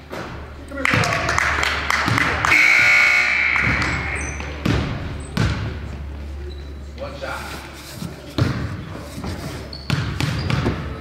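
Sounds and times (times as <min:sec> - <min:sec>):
scoreboard buzzer: 0:02.4 - 0:04.4.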